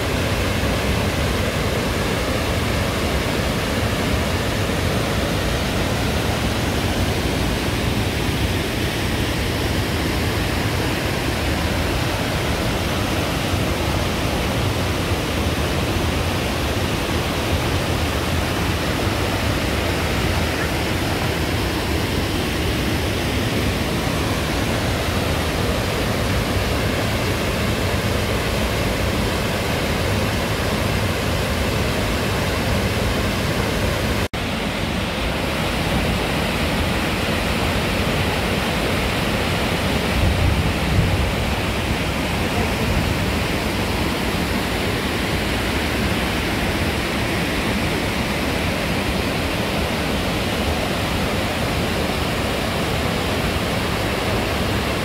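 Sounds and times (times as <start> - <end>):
river rushing over rocks: 0.0 - 55.0.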